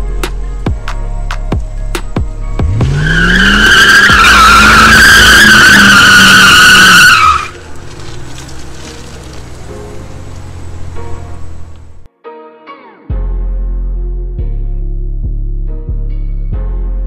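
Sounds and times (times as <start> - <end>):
car engine revving high: 2.6 - 12.0
tyres squealing: 2.6 - 12.0.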